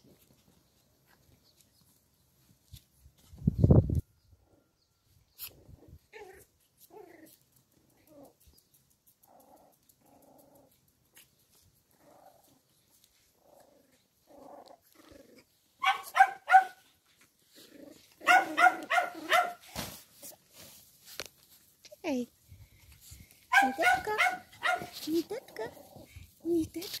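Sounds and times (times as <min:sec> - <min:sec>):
puppies play-growling: 0:05.4 - 0:15.8, 0:17.0 - 0:19.3, 0:24.0 - 0:27.0
high-pitched puppy yaps: 0:15.8 - 0:16.9, 0:18.2 - 0:19.7, 0:23.5 - 0:25.0.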